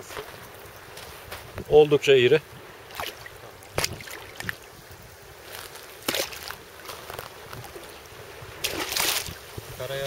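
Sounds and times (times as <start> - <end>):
water sloshing and splashing: 2.8 - 9.6.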